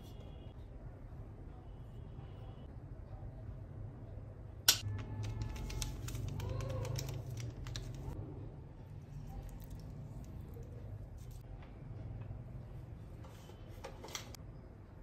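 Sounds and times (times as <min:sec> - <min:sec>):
plastic crinkling: 0:05.2 - 0:08.2.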